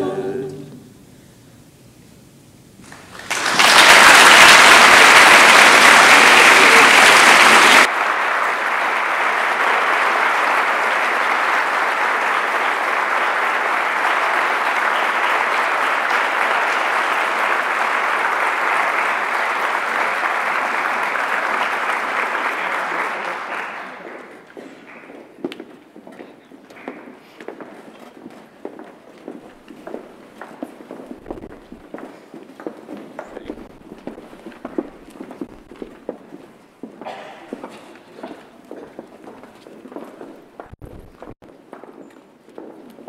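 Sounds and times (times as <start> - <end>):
audience applauding: 2.8 - 25.2, 33.2 - 36.0.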